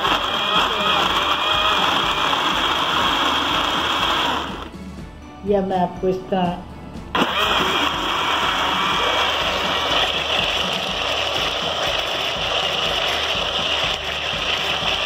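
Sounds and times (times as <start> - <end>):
electric blender grinding paste: 0.0 - 4.8, 7.1 - 15.0.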